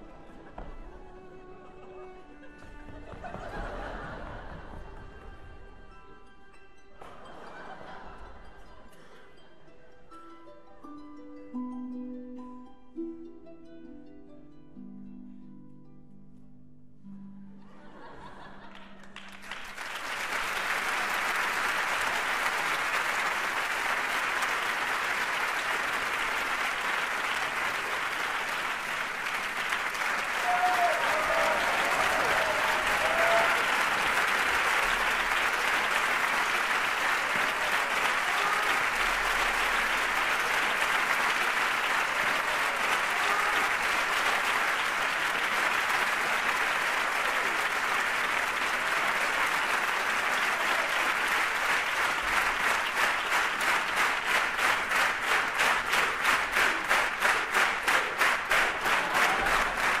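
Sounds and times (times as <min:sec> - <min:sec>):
audience applauding: 0:02.4 - 0:05.2, 0:18.2 - 1:00.0
rhythmic clapping in unison: 0:18.7 - 1:00.0.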